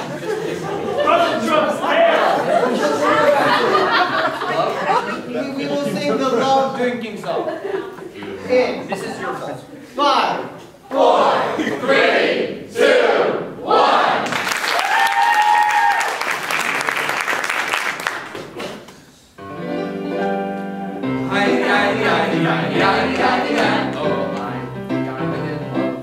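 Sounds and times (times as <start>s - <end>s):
audience applause: 14.2s - 18.8s
person whooping: 14.7s - 16.2s
music with singing: 19.6s - 26.0s.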